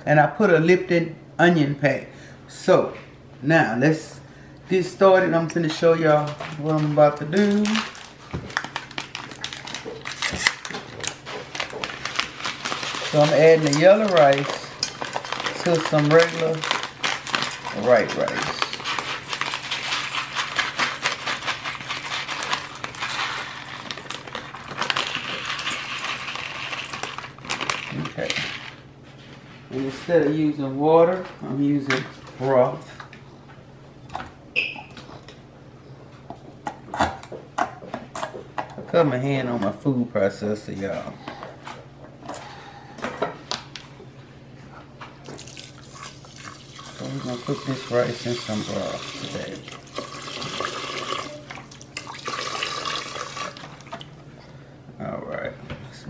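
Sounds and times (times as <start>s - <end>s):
packet crinkling: 6.1s - 28.8s, 45.2s - 53.8s
rice rustling as mixed by hand: 12.0s - 24.0s.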